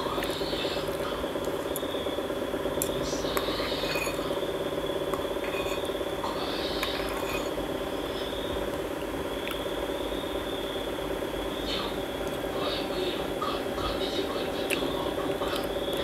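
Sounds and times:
steady hum with high whine: 0.0 - 16.0
metal spoon scraping porcelain bowl: 3.4 - 4.4, 5.4 - 6.0, 6.6 - 7.6.

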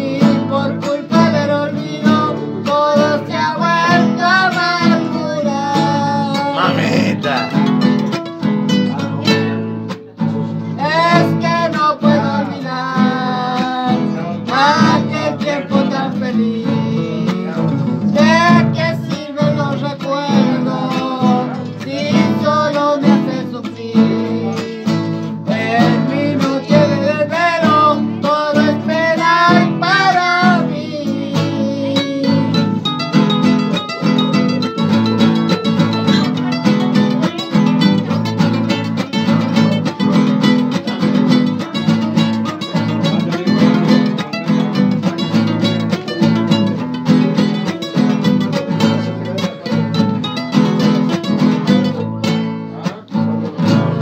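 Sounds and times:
girl singing: 0.0 - 7.6, 10.7 - 33.8
acoustic guitars strumming: 0.0 - 54.0.

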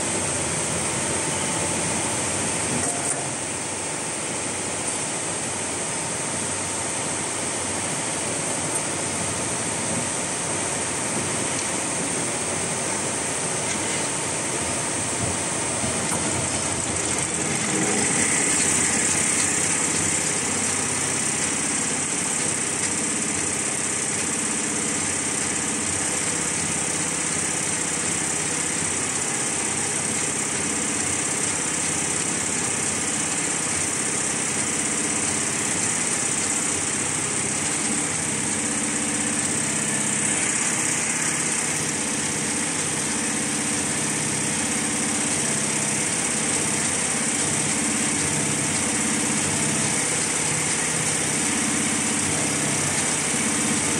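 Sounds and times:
constant machine hum: 0.0 - 53.9
embroidery machine needles chattering: 15.9 - 26.8.

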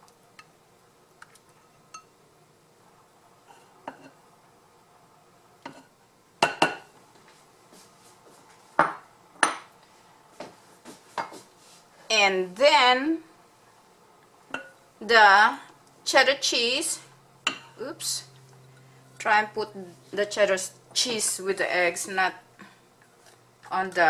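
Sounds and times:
glass bowls clinking: 1.6 - 2.1, 14.5 - 14.8.

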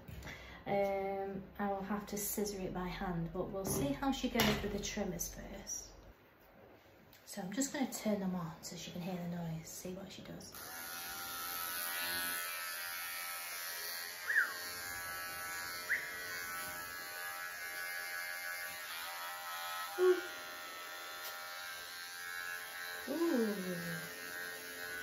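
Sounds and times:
electric clippers buzzing: 10.6 - 25.0.

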